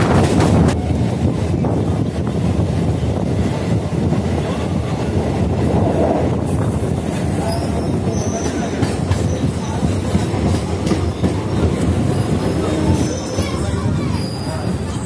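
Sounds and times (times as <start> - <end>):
train wheels rumbling on track: 0.0 - 15.0
high wheel squeal: 7.4 - 9.8, 12.5 - 15.0.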